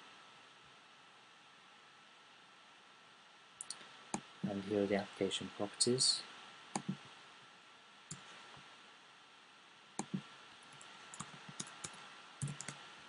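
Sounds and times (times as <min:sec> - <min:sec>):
mouse and keyboard clicks: 0:10.0 - 0:10.2, 0:10.8 - 0:12.8.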